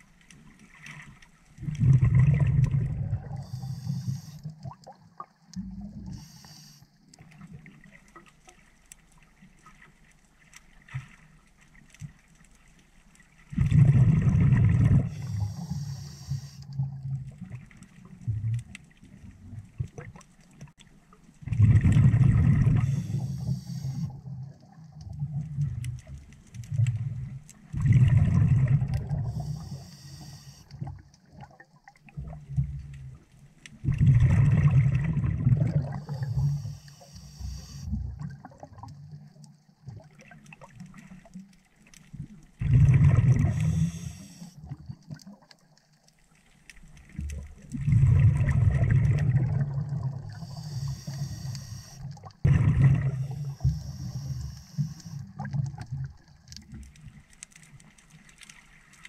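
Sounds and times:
exhaled bubbles rushing underwater: 0.7s - 6.2s, 13.5s - 20.8s, 21.4s - 41.5s, 42.1s - 45.6s, 46.8s - 57.2s
regulator hiss: 3.4s - 4.5s, 6.2s - 6.8s, 15.1s - 16.6s, 22.8s - 24.1s, 29.4s - 30.7s, 36.1s - 37.9s, 43.5s - 44.5s, 50.4s - 52.0s, 53.2s - 55.2s.

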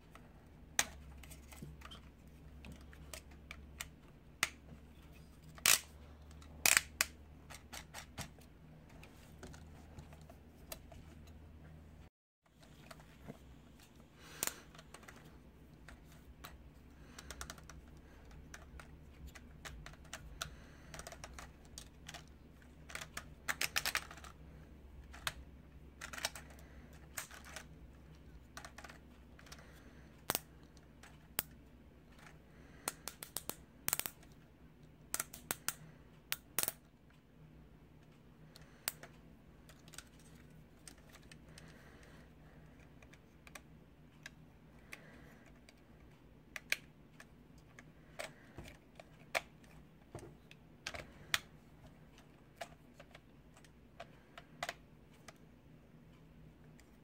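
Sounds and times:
faint low hum: 0.0s - 57.0s
plastic toy clicks and snaps: 5.6s - 5.9s, 6.6s - 8.3s, 32.8s - 34.3s, 35.1s - 36.8s.

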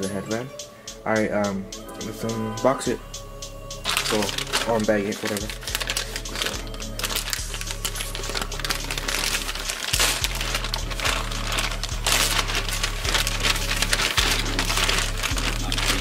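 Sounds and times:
background music with bass line: 0.0s - 16.0s
plastic mailer crinkling: 3.8s - 16.0s.

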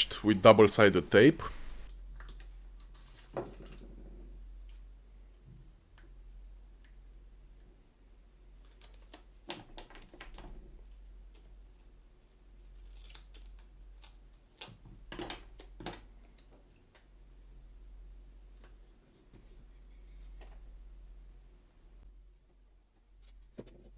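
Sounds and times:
low steady hum: 0.0s - 9.4s, 10.4s - 23.9s
tape being pulled: 12.8s - 14.8s.

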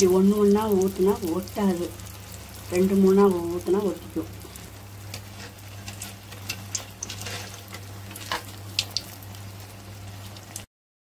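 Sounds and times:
low steady hum: 0.0s - 10.6s
batter sizzling in hot oil: 0.0s - 10.7s
oil pops and crackles: 5.1s - 9.2s.

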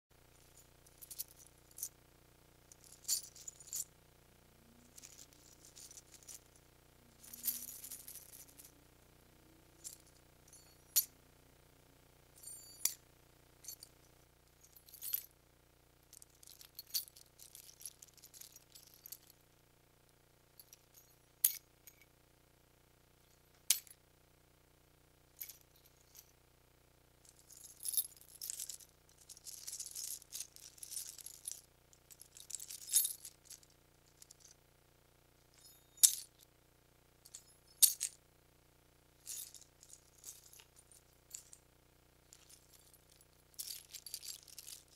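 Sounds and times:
keys clinking: 0.5s - 1.9s, 2.7s - 3.9s, 4.8s - 6.5s, 7.1s - 8.7s, 16.2s - 19.3s, 27.3s - 34.5s, 35.6s - 36.4s, 37.3s - 38.2s, 39.2s - 41.6s, 42.3s - 44.9s
keys jingling: 0.9s - 1.9s, 2.7s - 3.9s, 4.8s - 6.5s, 7.1s - 8.7s, 14.6s - 15.3s, 16.2s - 19.3s, 27.3s - 34.5s, 35.6s - 36.4s, 37.3s - 38.2s, 39.2s - 41.6s, 42.3s - 44.9s.

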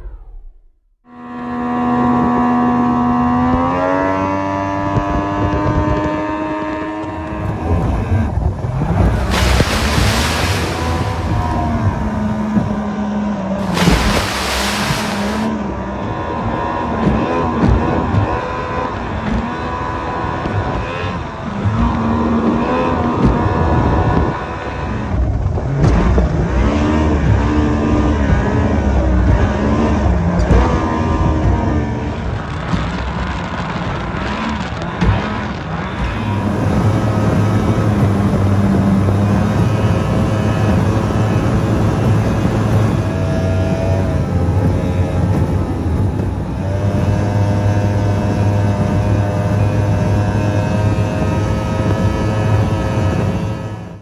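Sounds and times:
wind: 0.0s - 54.0s
outboard engine at high speed: 1.1s - 54.0s
rushing water: 8.7s - 12.9s, 13.6s - 15.5s.

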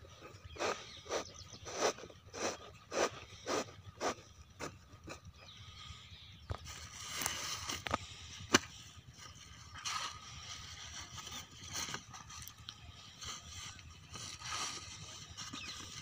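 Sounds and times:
dry stalks rustling and scraping: 6.4s - 16.0s.

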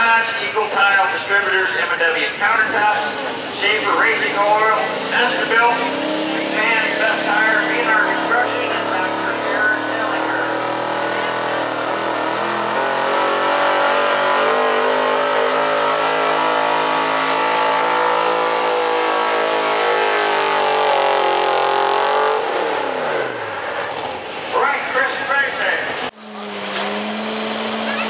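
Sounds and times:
truck engine at high revs: 0.0s - 28.0s.

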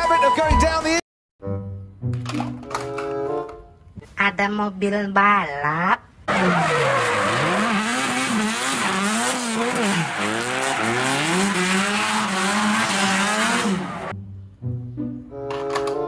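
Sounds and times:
tyre squeal: 6.3s - 14.1s
car engine revving: 6.3s - 14.2s.

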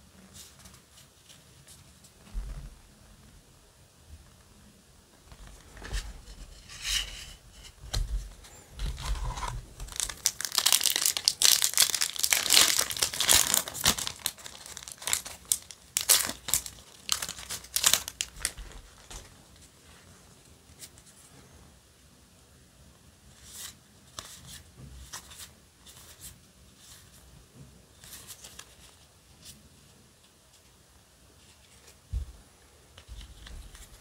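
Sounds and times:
foil pack crinkling and tearing: 9.8s - 19.3s.

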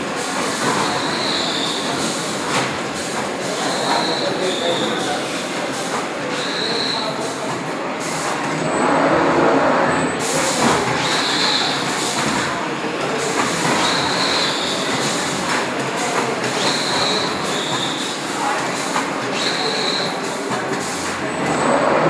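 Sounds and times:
machine clatter and hum: 0.0s - 4.2s, 4.8s - 22.0s
short high squeal: 3.6s - 5.1s, 6.3s - 7.2s.

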